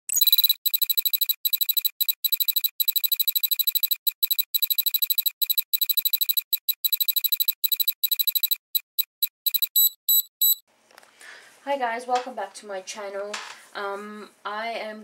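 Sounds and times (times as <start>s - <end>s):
electronic alarm trill: 0.1s - 10.6s.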